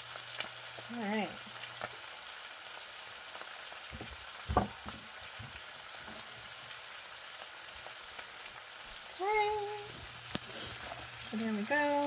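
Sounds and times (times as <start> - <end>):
cabbage sizzling in a pan: 0.0 - 12.0
thump: 3.9 - 5.0.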